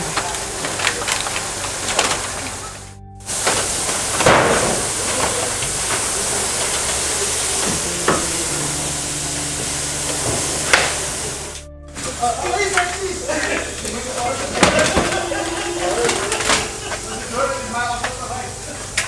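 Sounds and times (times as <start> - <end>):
debris being shifted: 0.0 - 7.9
steady hiss: 0.0 - 19.0.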